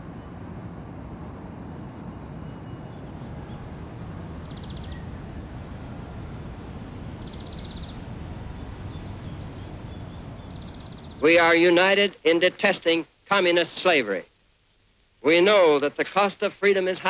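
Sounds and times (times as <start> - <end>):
low background noise: 0.0 - 17.0
high bird chirps: 4.2 - 6.0, 6.6 - 11.2.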